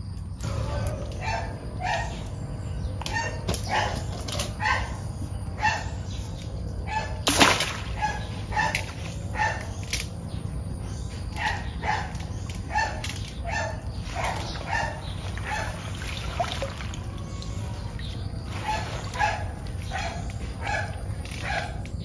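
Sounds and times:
farm animal calling: 0:00.4 - 0:07.2, 0:10.9 - 0:21.8.

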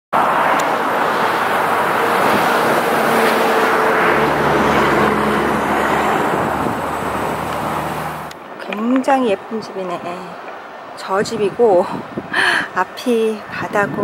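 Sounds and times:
steady rushing noise: 0:00.2 - 0:14.0.

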